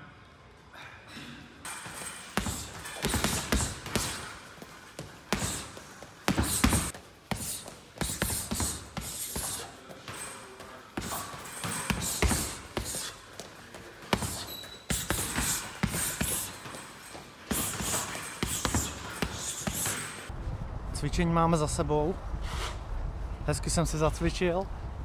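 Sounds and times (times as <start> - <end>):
gloves punching heavy bag: 1.7 - 20.3.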